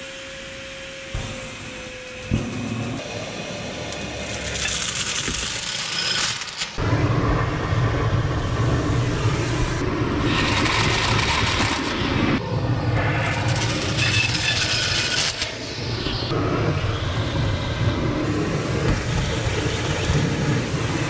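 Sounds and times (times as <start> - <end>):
vacuum cleaner suction: 8.6 - 12.4.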